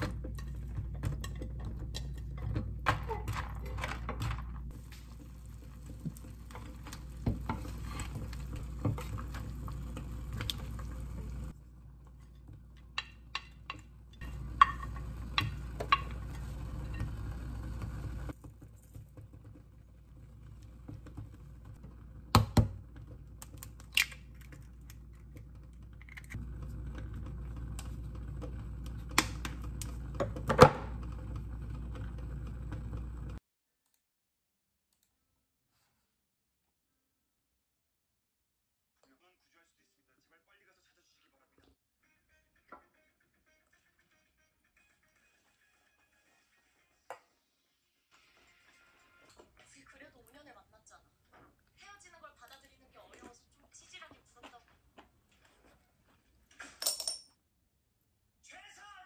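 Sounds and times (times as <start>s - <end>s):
stew bubbling in a pot: 4.7s - 30.5s.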